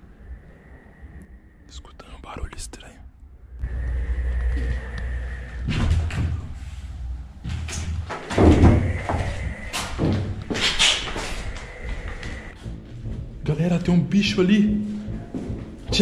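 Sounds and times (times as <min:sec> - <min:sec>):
low drone with high tone: 0:00.0 - 0:07.4.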